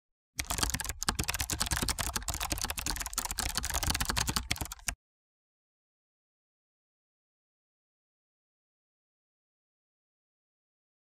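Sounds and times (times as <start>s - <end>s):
keyboard typing clicks: 0.4s - 5.0s.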